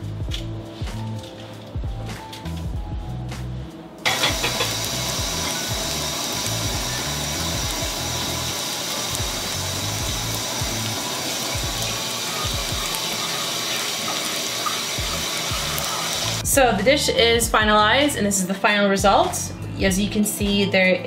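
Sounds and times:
background music: 0:00.0 - 0:21.0
buns sizzling in oil: 0:04.0 - 0:16.5.

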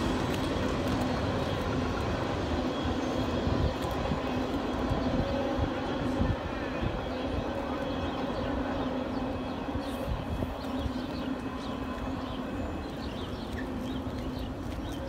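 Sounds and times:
train rumbling: 0:00.0 - 0:15.0
birds chirping: 0:04.2 - 0:15.0.

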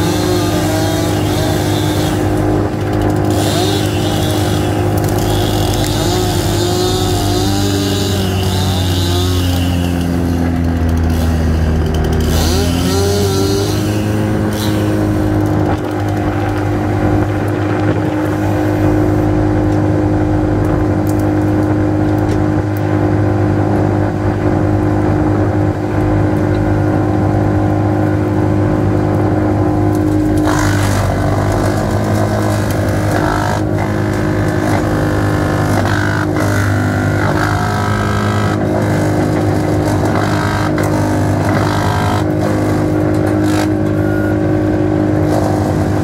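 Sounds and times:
wood chipper crunching: 0:00.0 - 0:23.8, 0:24.4 - 0:46.0
wood chipper diesel engine: 0:00.0 - 0:46.0.

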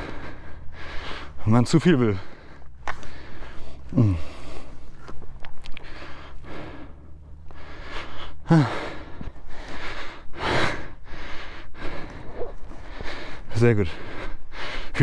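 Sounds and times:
low steady hum: 0:00.0 - 0:15.0
man breathing hard: 0:00.0 - 0:15.0
man grunting: 0:03.9 - 0:04.5, 0:08.4 - 0:09.0.

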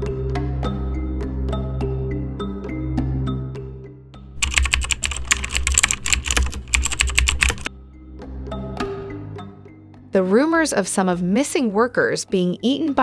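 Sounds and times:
typing on keys: 0:04.4 - 0:07.7.

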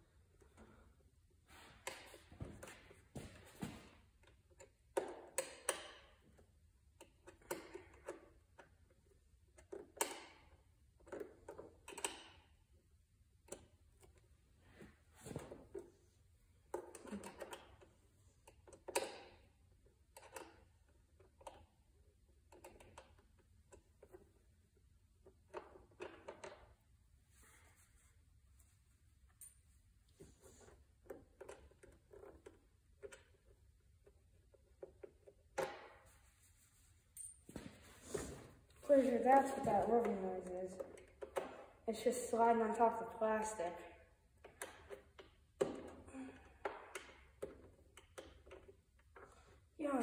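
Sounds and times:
hand tool and fasteners clinking: 0:29.3 - 0:29.7, 0:37.0 - 0:38.4.

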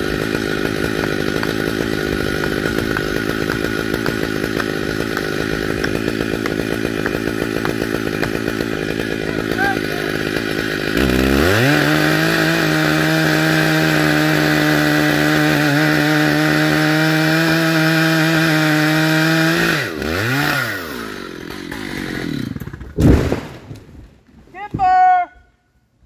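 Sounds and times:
chainsaw revving: 0:00.0 - 0:23.0
tree crashing to ground: 0:00.1 - 0:09.6, 0:22.5 - 0:24.2.

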